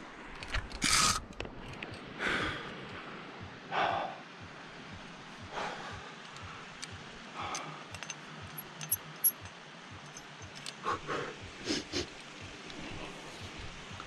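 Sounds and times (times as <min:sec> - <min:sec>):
climber breathing hard: 0:02.2 - 0:04.5, 0:05.4 - 0:08.6, 0:10.7 - 0:12.2
carabiners and chain clinking: 0:06.8 - 0:10.8.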